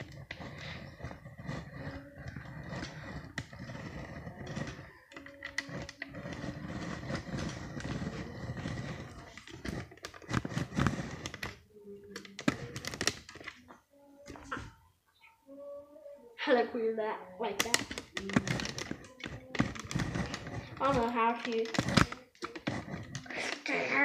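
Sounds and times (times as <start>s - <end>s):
rustling handling noise: 0.0s - 14.8s, 17.6s - 24.0s.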